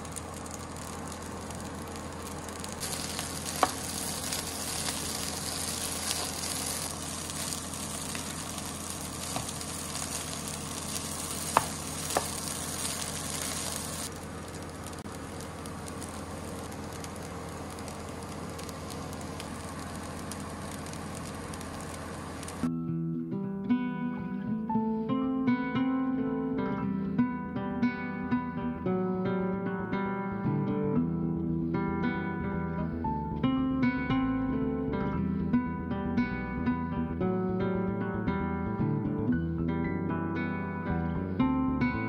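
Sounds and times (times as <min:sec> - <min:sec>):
rice sizzling in frying pan: 0:00.0 - 0:22.7
steady low hum: 0:00.0 - 0:22.8
spatula tapping pan: 0:11.3 - 0:13.1.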